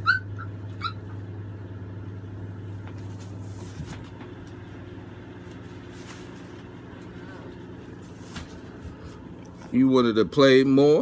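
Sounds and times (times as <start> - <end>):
puppy squeaking: 0.0 - 1.2
air conditioner humming: 0.0 - 11.0.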